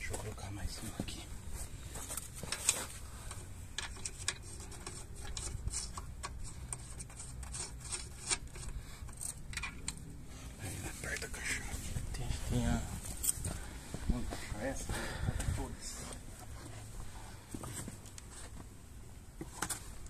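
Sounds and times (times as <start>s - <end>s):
lug nuts scraping and clicking: 2.4s - 10.1s.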